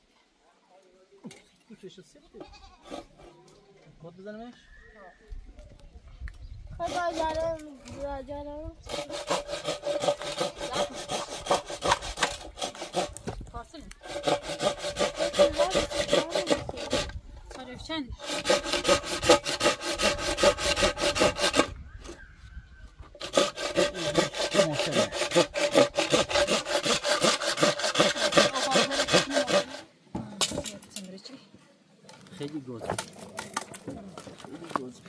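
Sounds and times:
hand saw cutting wood: 0:02.8 - 0:03.4, 0:06.8 - 0:08.1, 0:08.8 - 0:13.4, 0:14.0 - 0:17.2, 0:18.2 - 0:21.8, 0:23.1 - 0:29.9.

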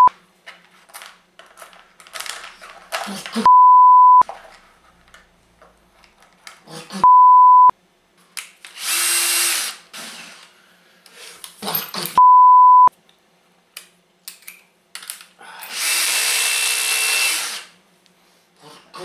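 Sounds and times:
censor bleeps: 0:03.5 - 0:04.2, 0:07.0 - 0:07.7, 0:12.2 - 0:12.9
cordless drill spinning: 0:08.7 - 0:10.5, 0:15.7 - 0:17.7.

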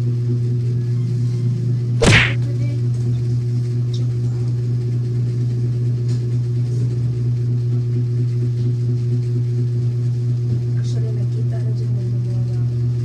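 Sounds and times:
steady low hum: 0:02.0 - 0:02.4.

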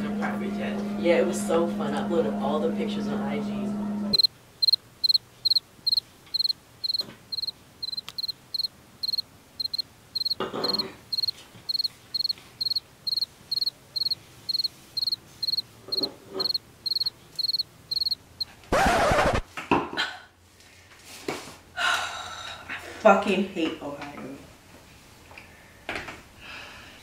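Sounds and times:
cricket chirping: 0:04.1 - 0:18.5.

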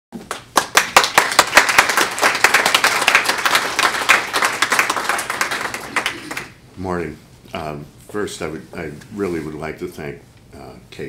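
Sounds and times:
audience applauding: 0:00.3 - 0:06.6.

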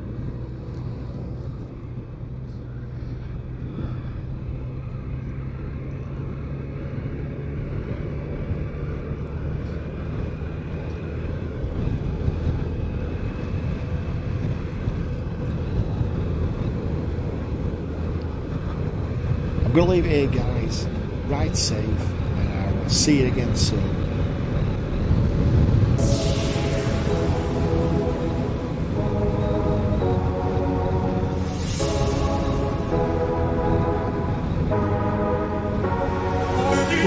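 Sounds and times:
road and wind noise: 0:00.0 - 0:37.0.

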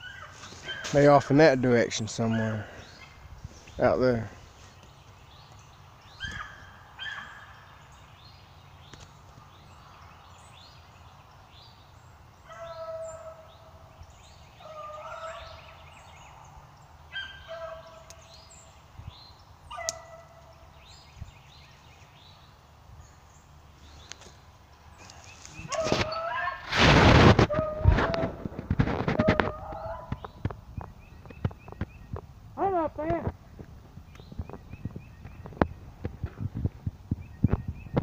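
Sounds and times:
dogs baying faintly: 0:00.0 - 0:01.2, 0:02.0 - 0:03.2, 0:12.4 - 0:13.5, 0:14.6 - 0:15.7, 0:17.1 - 0:18.3, 0:19.7 - 0:20.7, 0:27.4 - 0:30.4.

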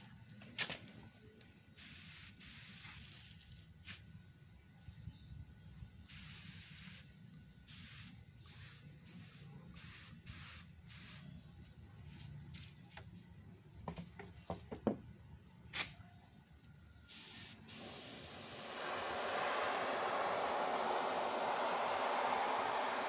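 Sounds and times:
spray gun hissing blasts: 0:01.8 - 0:03.0, 0:06.1 - 0:11.3, 0:17.1 - 0:23.0.

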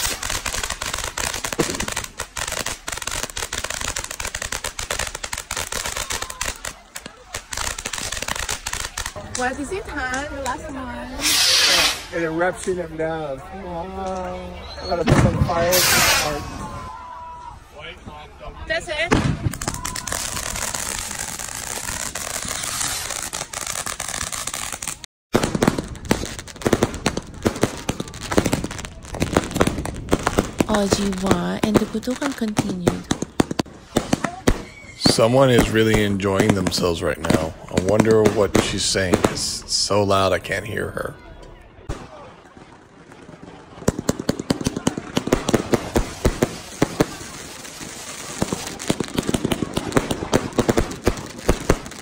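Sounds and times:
firework crackling and popping: 0:00.0 - 0:12.8, 0:15.1 - 0:16.8, 0:18.8 - 0:41.1, 0:41.8 - 0:52.0.

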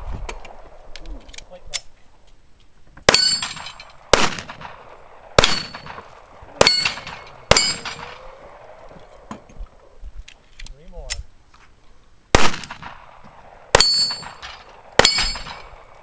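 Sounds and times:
steel target ringing clang: 0:03.1 - 0:03.9, 0:05.4 - 0:06.0, 0:06.6 - 0:08.2, 0:13.8 - 0:15.8
gunshots: 0:03.1 - 0:08.7, 0:12.3 - 0:16.0.

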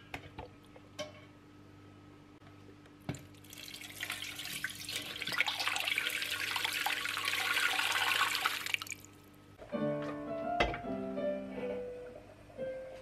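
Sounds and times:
water pouring into a pot: 0:03.3 - 0:09.1.

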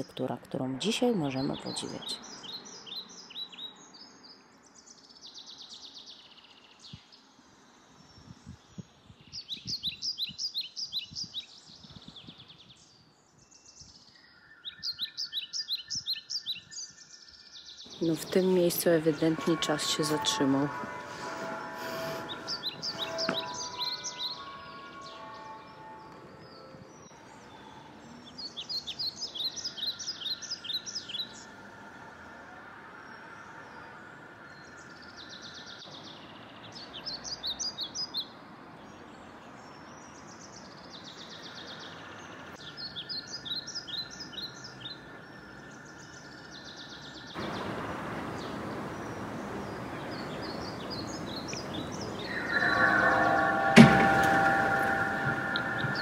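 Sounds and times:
songbird chirping: 0:00.0 - 0:56.0
steady tones: 0:17.9 - 0:26.9, 0:52.0 - 0:56.0
sharp knock: 0:52.4 - 0:56.0.

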